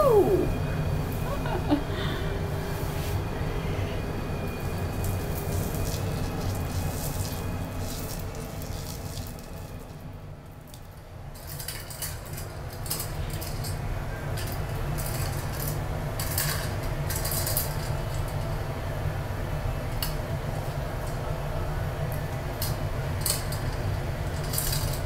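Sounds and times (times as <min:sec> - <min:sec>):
steady low hum: 0:00.0 - 0:17.2.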